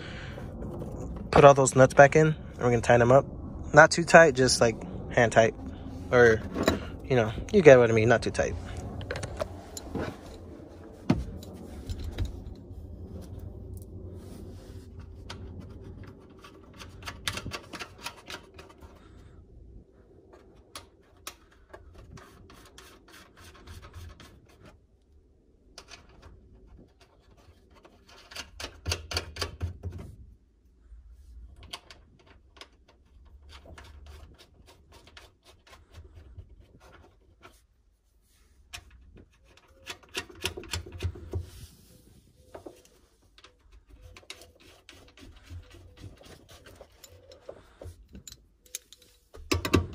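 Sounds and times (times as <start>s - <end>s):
nuts clicking and scraping on studs: 15.0s - 19.4s, 20.2s - 30.3s, 31.4s - 37.8s, 38.6s - 41.6s, 42.5s - 49.9s.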